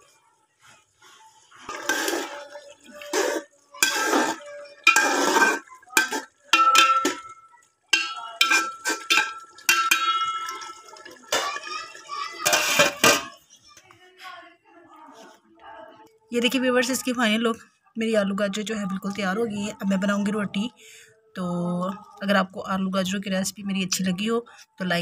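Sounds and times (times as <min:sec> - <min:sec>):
metal ladle scraping pot: 0:01.6 - 0:07.4, 0:08.0 - 0:13.4.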